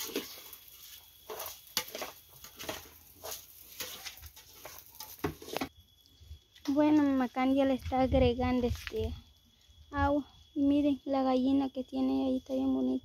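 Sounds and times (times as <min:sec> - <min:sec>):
rice scraping in metal pot: 0:00.0 - 0:05.7.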